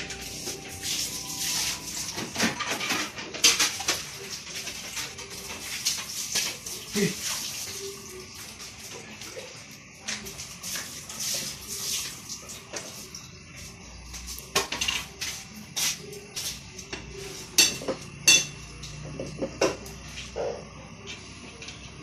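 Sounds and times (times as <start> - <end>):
pots and pans clattering: 0.1 - 9.0, 14.4 - 15.2, 16.9 - 20.1.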